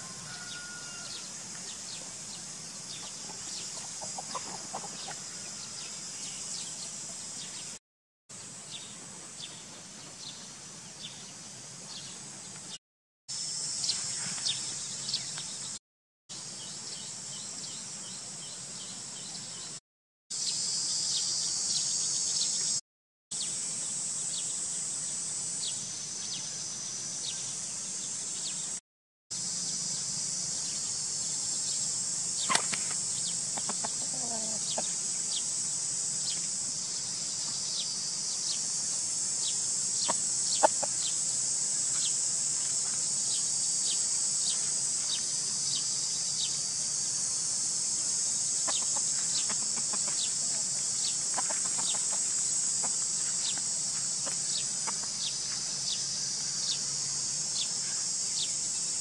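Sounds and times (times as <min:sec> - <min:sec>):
high-pitched insect drone: 0:00.0 - 0:07.8, 0:13.3 - 0:15.8, 0:20.4 - 0:22.8, 0:23.4 - 0:28.8, 0:29.4 - 0:59.0
rooster clucking: 0:03.8 - 0:05.2, 0:33.6 - 0:34.9, 0:40.1 - 0:41.0, 0:48.6 - 0:50.6, 0:51.3 - 0:53.0.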